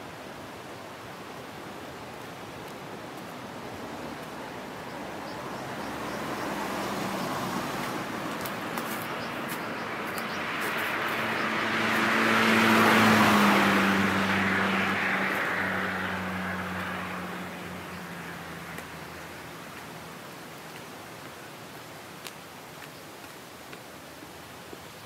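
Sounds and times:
rushing road noise: 0:00.0 - 0:25.0
low car engine hum: 0:03.4 - 0:20.4.

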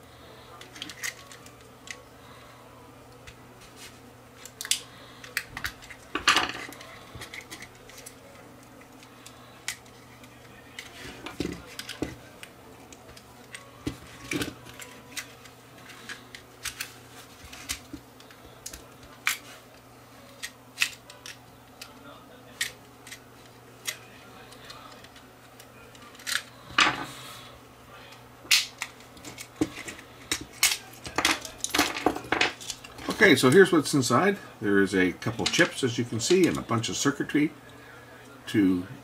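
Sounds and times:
plastic tabs snapping: 0:04.4 - 0:06.0, 0:28.5 - 0:31.7.

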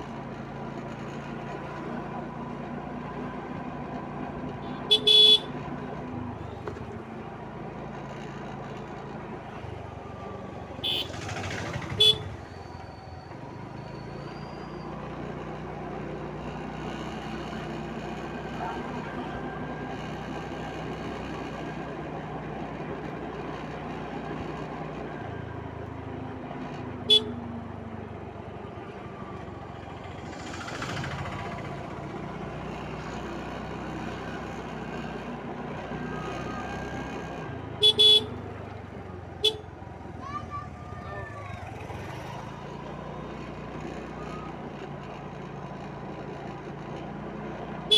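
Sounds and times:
motor scooter running: 0:00.0 - 0:47.9
scooter horn toots: 0:04.6 - 0:05.7, 0:10.7 - 0:12.6, 0:27.0 - 0:27.6, 0:37.7 - 0:38.6, 0:39.3 - 0:39.8.

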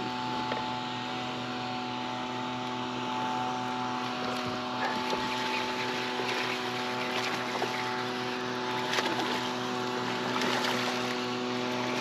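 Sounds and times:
electric trolling motor humming: 0:00.0 - 0:12.0
water splashes: 0:04.0 - 0:12.0.

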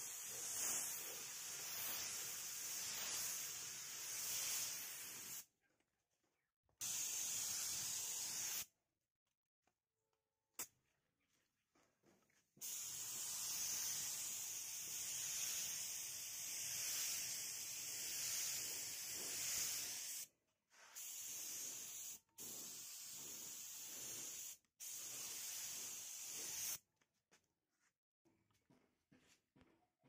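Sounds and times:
aerosol spray paint hissing: 0:00.0 - 0:05.5, 0:06.8 - 0:08.7, 0:12.6 - 0:26.8.

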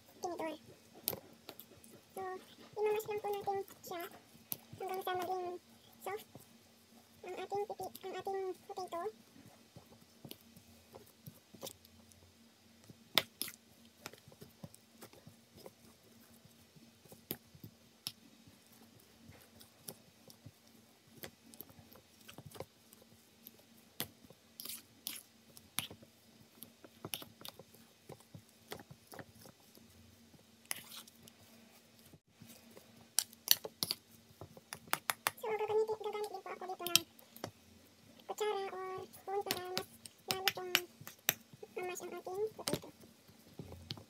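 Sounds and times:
potato squashing: 0:12.8 - 0:44.0.

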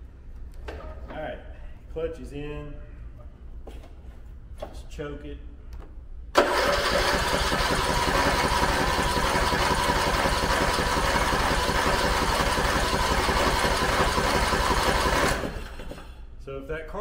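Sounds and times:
electric starter cranking engine: 0:06.4 - 0:16.1.

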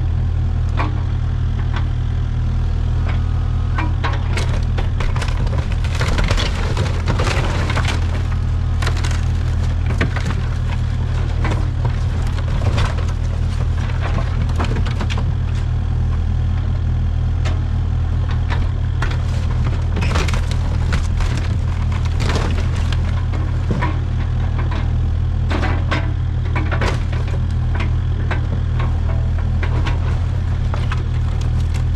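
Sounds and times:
diesel engine running: 0:00.0 - 0:31.9
wood cracking and splintering: 0:04.0 - 0:15.8, 0:18.4 - 0:25.8, 0:26.5 - 0:31.9.

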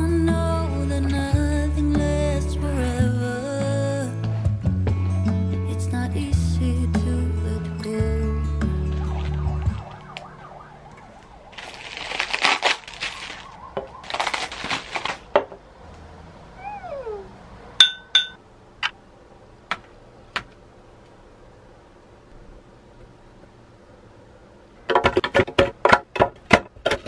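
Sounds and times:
bubble wrap crinkling: 0:08.8 - 0:10.3, 0:11.0 - 0:15.3
glass bowl clinking: 0:17.8 - 0:18.4.

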